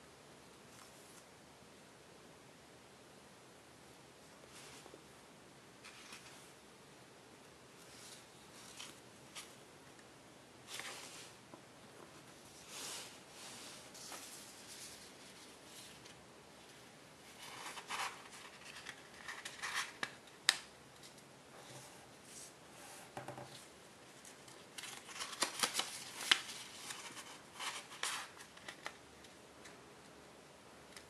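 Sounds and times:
foil paper crinkling: 24.7s - 28.9s.

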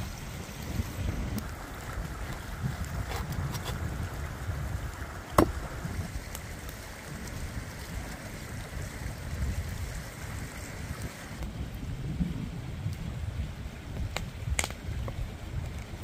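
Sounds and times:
faint crisp crackles: 0.0s - 4.1s
rushing stream: 0.0s - 11.7s
wind rumbling on microphone: 0.0s - 16.0s.

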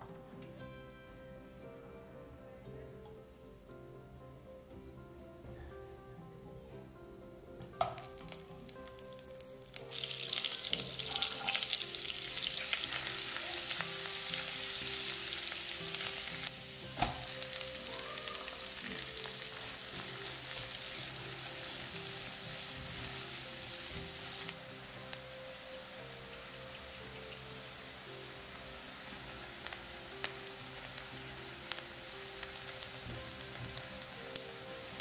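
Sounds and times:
soft background music: 0.0s - 35.0s
onion dropped into pan knock: 7.8s - 8.1s
garlic sizzling in butter: 7.8s - 35.0s.

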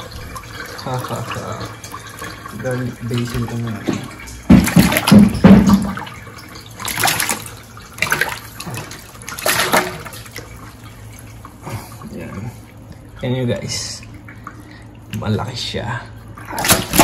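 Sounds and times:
fish splashing in sink: 0.0s - 15.4s, 16.2s - 17.0s.

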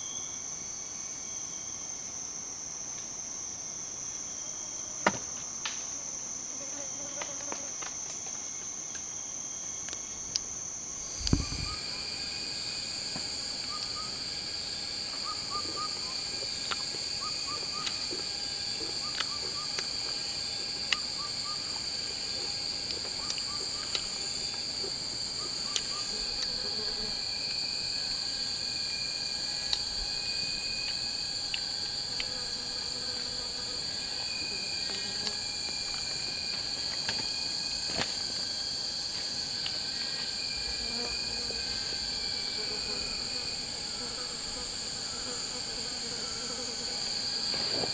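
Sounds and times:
shrill insect chorus: 0.0s - 47.9s
dull thump: 11.2s - 11.8s.

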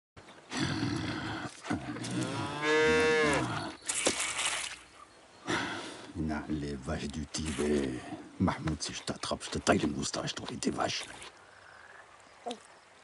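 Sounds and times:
cow mooing: 2.0s - 3.6s.

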